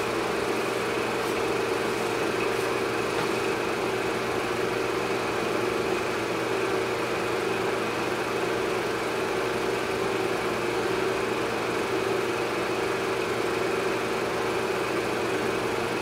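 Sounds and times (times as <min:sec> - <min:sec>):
mechanical drone with hiss: 0:00.0 - 0:04.6.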